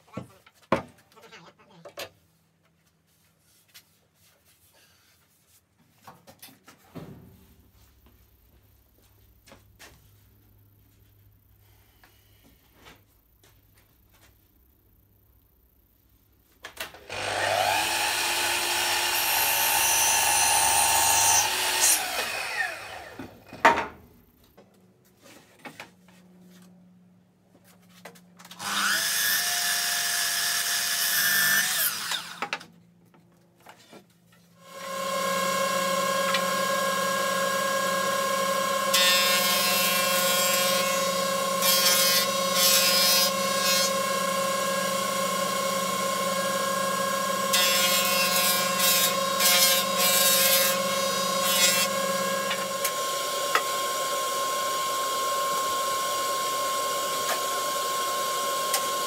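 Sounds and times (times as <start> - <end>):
mitre saw cutting wood: 17.0 - 23.4, 28.6 - 32.6, 34.6 - 59.0
board fed across planer cutter: 17.1 - 23.4, 34.6 - 59.0.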